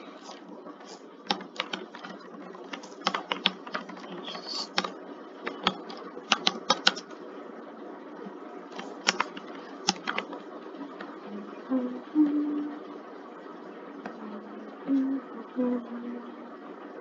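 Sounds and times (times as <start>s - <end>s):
keyboard typing: 0.2s - 7.2s, 8.7s - 10.4s
steady hiss: 4.1s - 4.9s.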